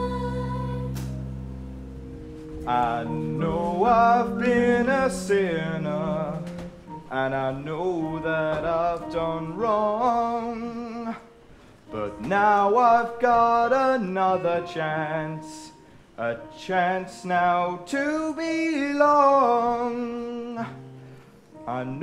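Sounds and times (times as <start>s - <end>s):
person singing long notes: 0.0s - 1.3s, 2.5s - 21.0s
instrumental accompaniment: 0.0s - 17.2s.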